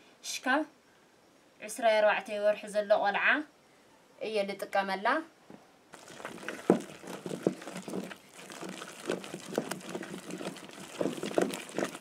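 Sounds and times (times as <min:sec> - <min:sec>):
wooden spoon scraping a pot: 0:06.0 - 0:12.0.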